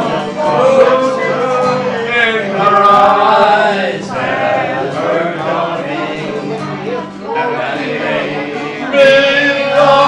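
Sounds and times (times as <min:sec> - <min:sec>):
man singing slow song: 0:00.0 - 0:06.7, 0:07.3 - 0:10.0
acoustic guitar: 0:00.0 - 0:10.0
other voices singing: 0:00.0 - 0:10.0.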